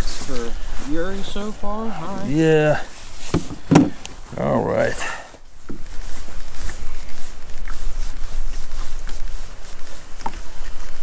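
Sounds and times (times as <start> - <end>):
faint knocks: 3.3 - 4.0.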